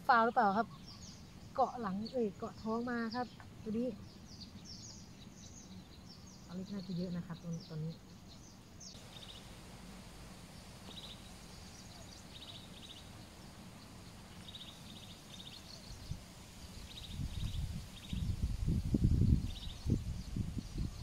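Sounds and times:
steady low hiss: 0.0s - 21.0s
small bird trilling chirps: 0.2s - 9.5s, 10.8s - 21.0s
wind buffeting microphone: 15.4s - 21.0s.

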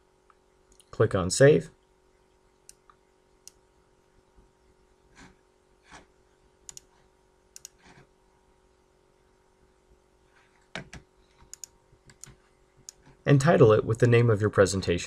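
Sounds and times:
faint steady hum: 0.0s - 15.0s
computer mouse clicking: 6.7s - 8.0s, 10.7s - 13.2s.

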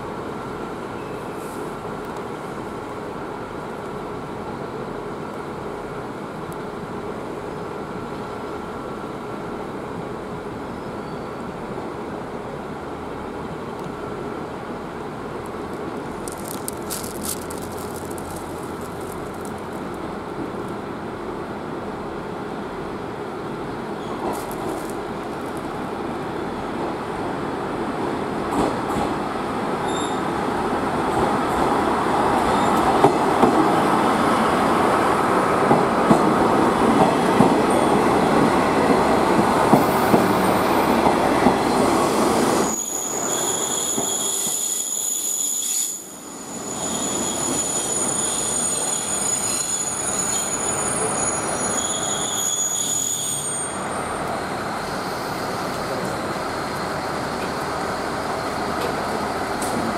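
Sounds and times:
brakes squealing: 42.6s - 54.2s
diesel railcar engine running: 53.8s - 59.9s.

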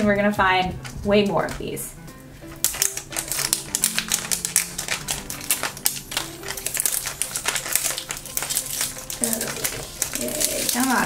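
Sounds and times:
paper wrapper crinkling: 2.4s - 11.0s.

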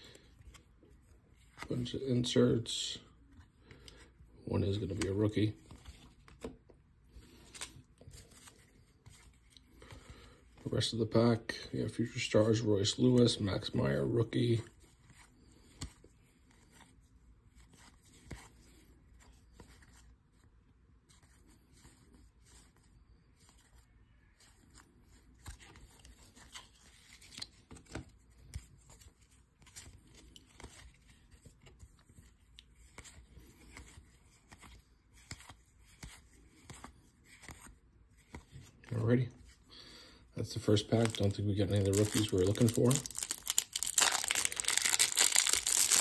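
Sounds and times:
trading cards sliding and clicking: 7.2s - 10.1s.

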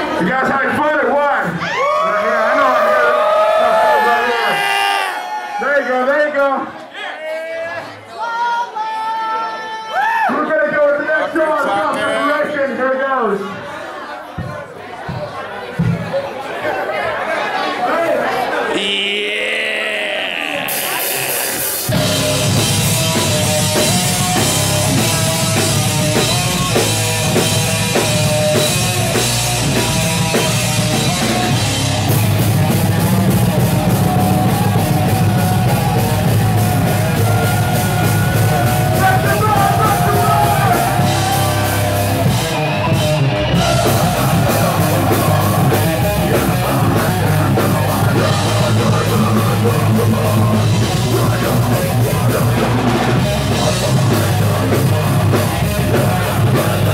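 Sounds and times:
heavy rock band playing: 18.8s - 56.9s.

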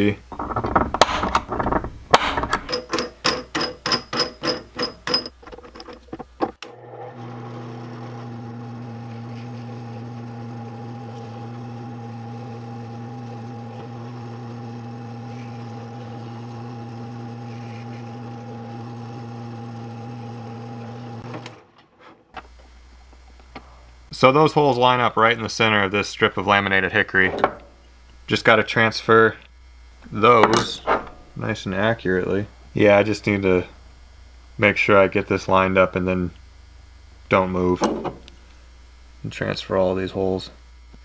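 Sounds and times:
drill press motor humming: 5.9s - 21.8s.

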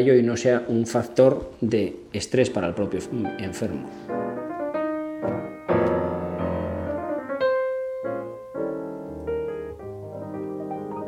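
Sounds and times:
slow piano music: 2.4s - 11.0s.

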